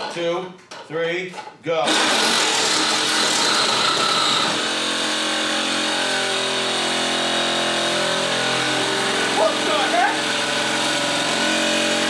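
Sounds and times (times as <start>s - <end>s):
saw motor whine: 1.9s - 12.0s.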